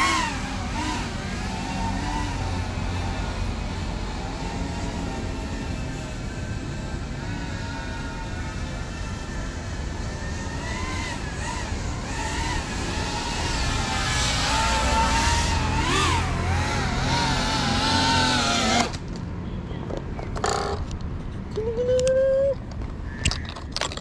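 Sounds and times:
drone motors whining: 0.0 - 19.0.

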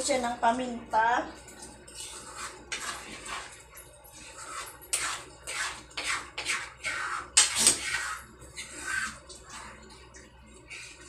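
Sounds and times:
spatula scraping a wok: 1.9 - 9.8.

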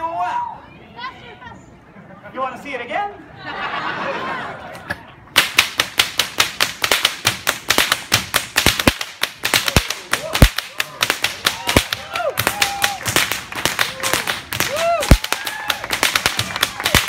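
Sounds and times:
crowd chatter: 0.4 - 5.3
whips cracking: 5.4 - 17.0.

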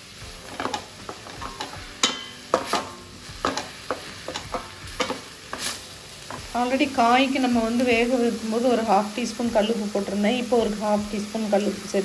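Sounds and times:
faint frying sizzle: 0.0 - 12.0
wooden spatula scraping metal pan: 0.3 - 6.6.

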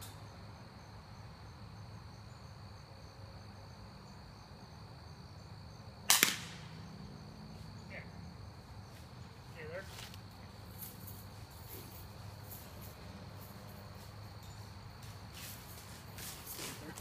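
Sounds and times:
short second crack: 6.1 - 6.6
air rifle shot crack: 6.1 - 6.8.

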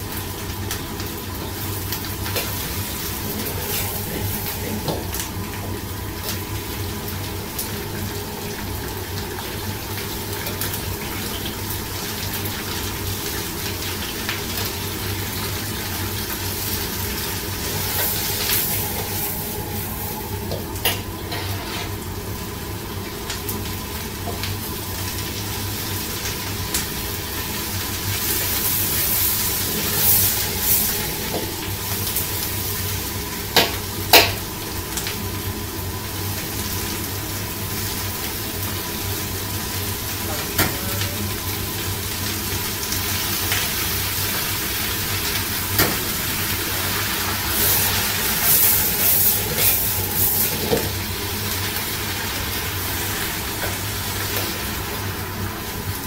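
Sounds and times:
steady low hum: 0.0 - 12.2, 14.7 - 34.7
vegetables sizzling in oil: 0.0 - 56.0.

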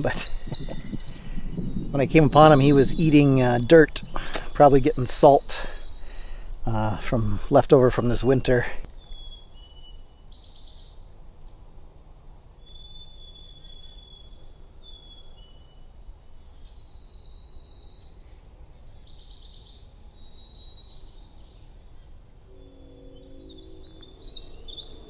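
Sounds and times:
low background rumble: 0.0 - 7.6
songbirds singing: 0.0 - 25.0.

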